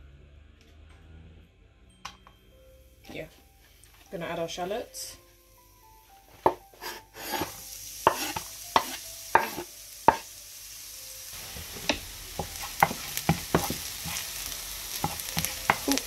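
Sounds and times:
shallots sizzling in oil: 2.8 - 16.0
spoon scraping and knocking pan: 6.3 - 10.3, 11.4 - 16.0.

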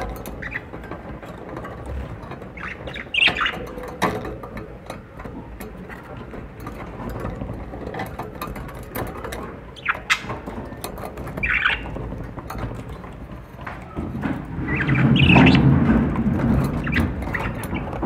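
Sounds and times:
light clicks and scratches: 0.0 - 18.0
budgerigars squawking: 11.4 - 12.0, 14.7 - 15.7.

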